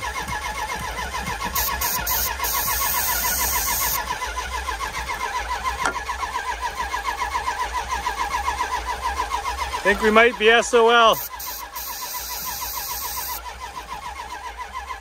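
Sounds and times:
starter cranking engine: 0.0 - 15.0
aerosol spray hissing: 1.6 - 4.0, 11.2 - 13.4.

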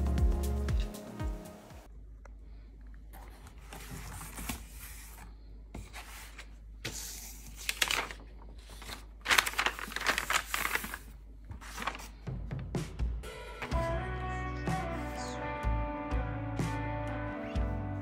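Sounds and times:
cardboard and paper rustling: 3.1 - 12.2.

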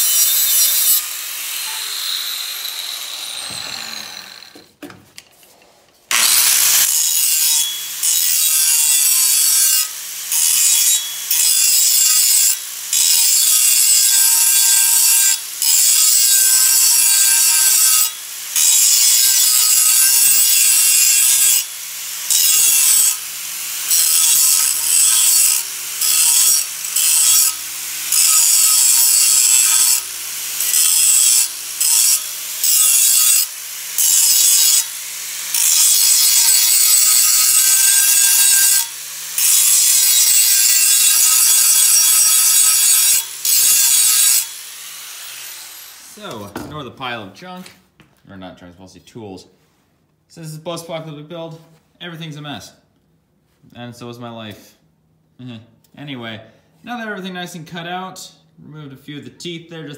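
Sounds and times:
angle grinder cutting steel: 0.0 - 4.6, 6.1 - 46.4.

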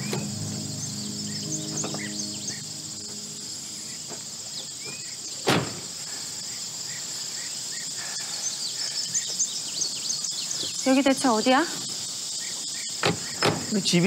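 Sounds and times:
crickets and insects chirping: 0.0 - 14.0
vehicle door shutting: 5.4 - 5.8.

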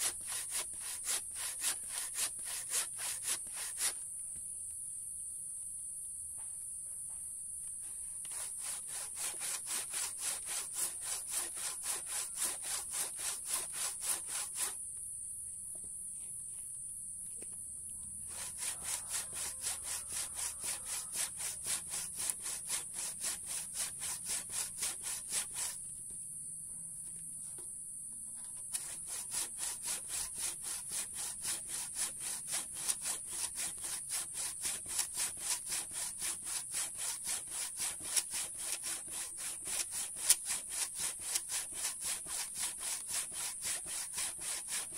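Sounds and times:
handsaw cutting log: 0.0 - 4.0, 8.2 - 14.8, 18.3 - 25.8, 28.7 - 44.9.

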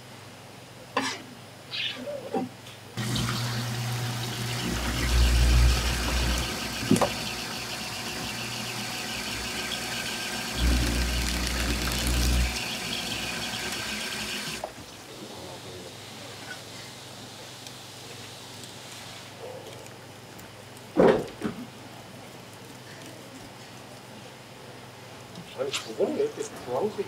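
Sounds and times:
skinning machine motor hum: 3.0 - 14.7.

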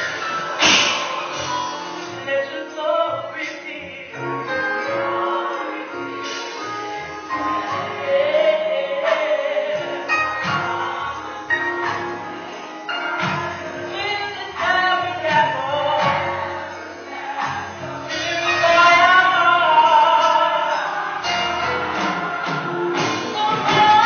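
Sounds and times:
loud crash: 0.0 - 2.1
choir singing: 0.0 - 3.4, 4.0 - 24.0
instrumental accompaniment: 0.0 - 24.0.

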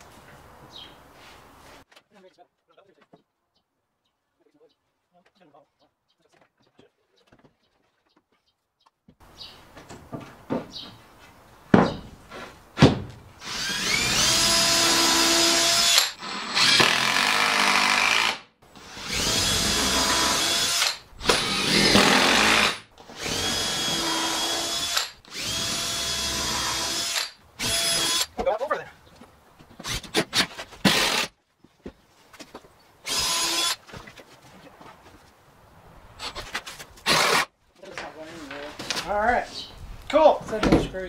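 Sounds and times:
knocks: 11.7 - 12.1
cordless drill into wood: 13.4 - 28.4, 29.8 - 31.3, 33.0 - 33.8, 37.0 - 37.5.

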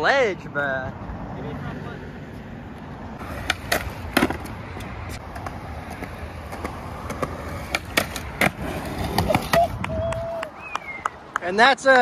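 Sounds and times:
skateboard wheels rolling on concrete: 0.2 - 12.0
skateboard clacks: 3.2 - 12.0.

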